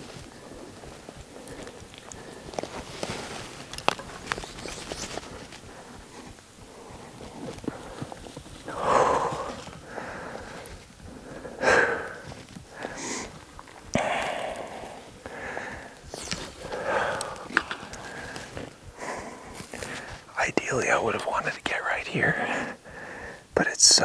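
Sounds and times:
sharp clicks: 0:00.0 - 0:06.5
person breathing hard: 0:00.0 - 0:20.3, 0:22.3 - 0:23.6.

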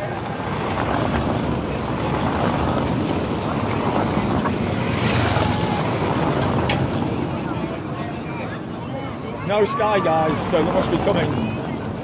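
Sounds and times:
motorbike passing close: 0:00.0 - 0:07.5
car engine and tyres on cobbles: 0:00.0 - 0:08.2.

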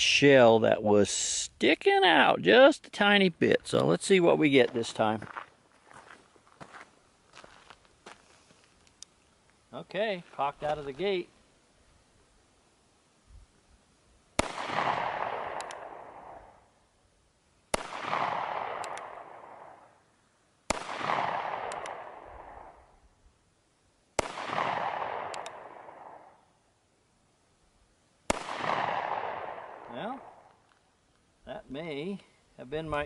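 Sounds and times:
revolver gunshots echoing: 0:14.4 - 0:16.6, 0:17.7 - 0:19.9, 0:20.7 - 0:22.8, 0:24.2 - 0:26.4, 0:28.3 - 0:30.5.

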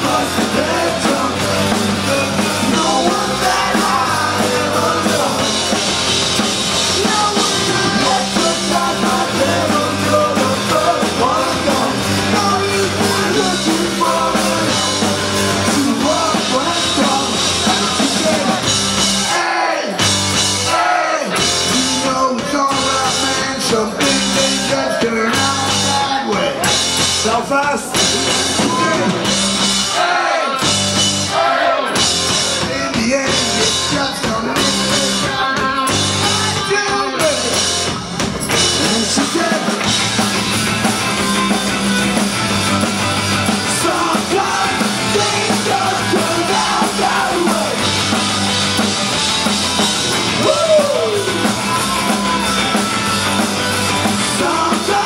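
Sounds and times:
lead singer singing: 0:00.0 - 0:20.0, 0:20.6 - 0:40.2, 0:43.4 - 0:55.0
live punk band playing: 0:00.0 - 0:55.0.

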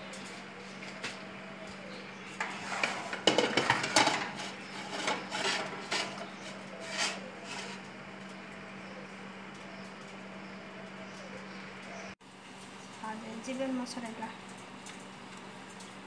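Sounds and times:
metal pans scraping on wire rack: 0:02.4 - 0:08.0.

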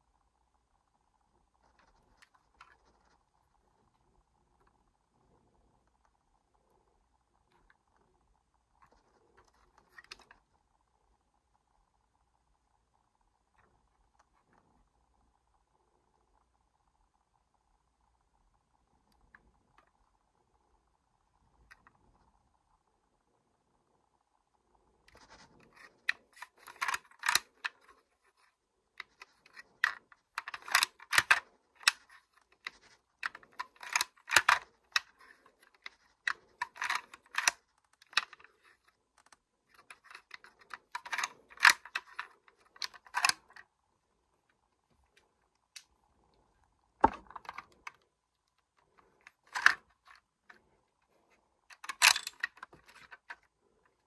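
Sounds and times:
plastic toy bolt clicking: 0:26.3 - 0:28.0, 0:29.0 - 0:38.6, 0:39.2 - 0:43.6, 0:49.3 - 0:50.1, 0:51.7 - 0:53.4.

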